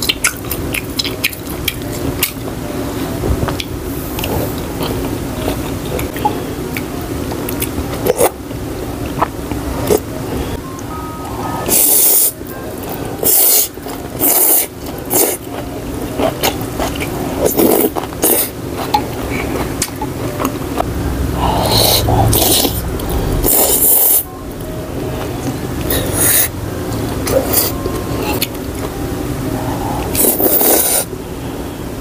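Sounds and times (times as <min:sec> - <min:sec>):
blowing on hot food: 0:13.2 - 0:15.4, 0:25.9 - 0:26.5, 0:29.7 - 0:31.1
slurping noodles and broth: 0:13.2 - 0:15.4, 0:16.2 - 0:18.6, 0:21.4 - 0:22.8, 0:23.4 - 0:24.2, 0:29.6 - 0:31.1.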